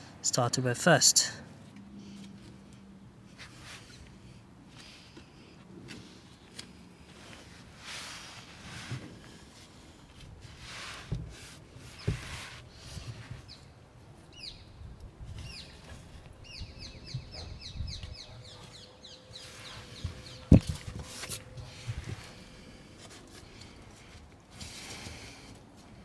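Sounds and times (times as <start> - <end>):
songbird chirping: 14.3 - 20.9.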